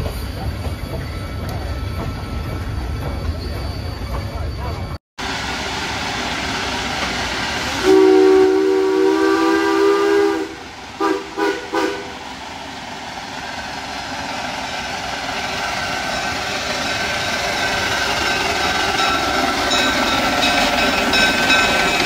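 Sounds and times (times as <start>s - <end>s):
steam engine running: 5.2s - 22.0s
steam locomotive chime whistle: 7.7s - 12.2s, 14.2s - 22.0s.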